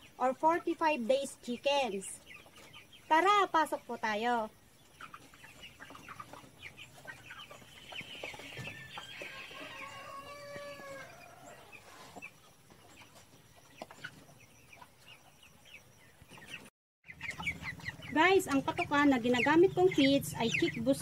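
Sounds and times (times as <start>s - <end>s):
chickens clucking: 0.0s - 21.0s
rooster crowing: 8.8s - 11.9s.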